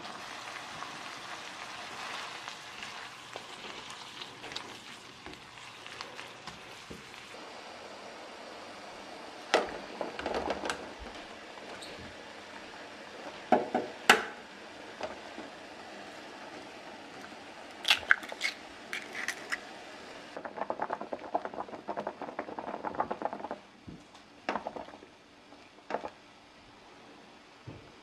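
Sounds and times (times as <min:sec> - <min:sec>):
water boiling and bubbling: 0:00.0 - 0:26.8.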